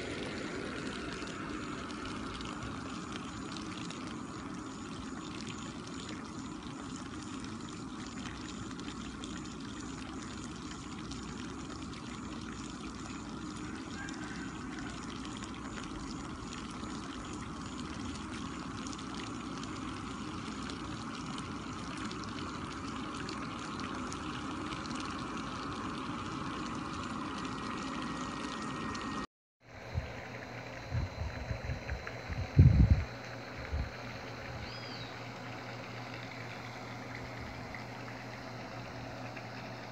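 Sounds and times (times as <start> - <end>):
air bubbling in water: 29.8 - 39.9.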